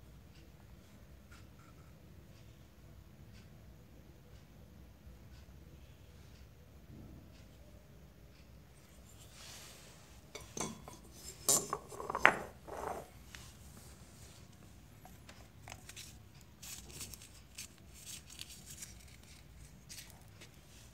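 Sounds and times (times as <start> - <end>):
metal cylinder set down on floor: 10.4 - 13.1.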